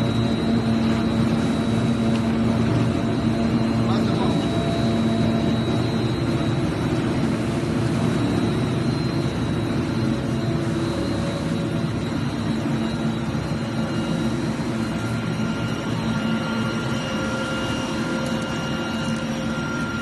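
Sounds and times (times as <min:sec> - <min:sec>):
machine drone with hum and whine: 0:00.0 - 0:20.0.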